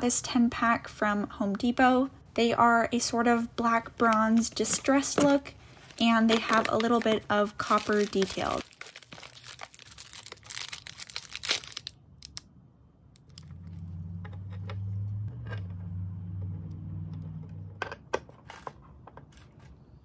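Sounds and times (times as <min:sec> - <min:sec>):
plastic packaging crinkling: 0:04.8 - 0:12.4.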